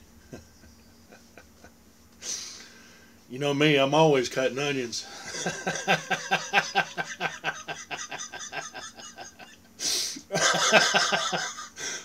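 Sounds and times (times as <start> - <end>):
man laughing breathily: 0.2 - 2.6, 5.1 - 12.0
sharp intake of breath: 2.2 - 3.3, 9.8 - 10.3.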